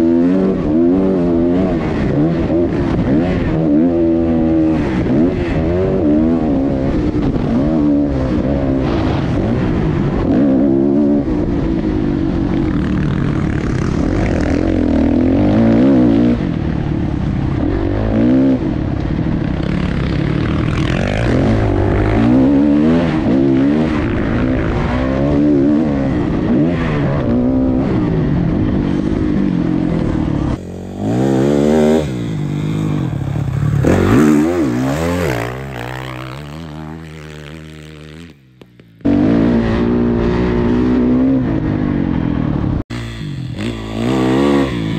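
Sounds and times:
dirt bike engine revving: 0.0s - 44.9s.

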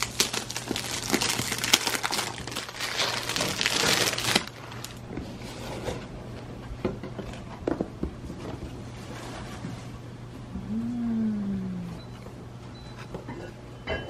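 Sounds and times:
plastic wrapping crinkling: 0.0s - 5.0s.

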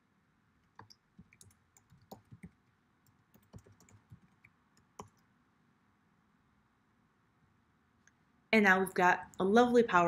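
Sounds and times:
computer keyboard typing: 0.6s - 5.2s.

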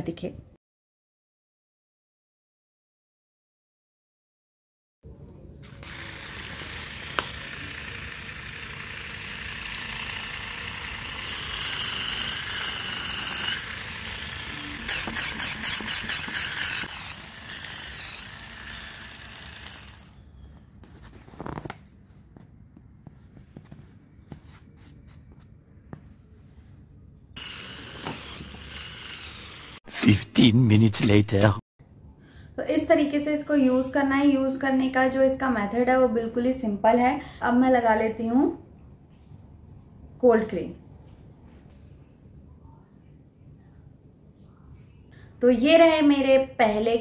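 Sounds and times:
electric callus remover whining: 5.7s - 20.3s, 27.4s - 29.8s.

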